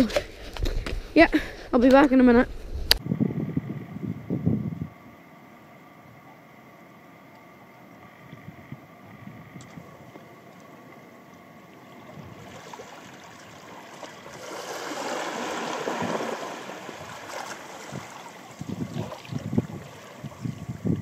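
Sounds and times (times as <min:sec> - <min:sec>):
wave washing up a beach: 0:12.0 - 0:21.0.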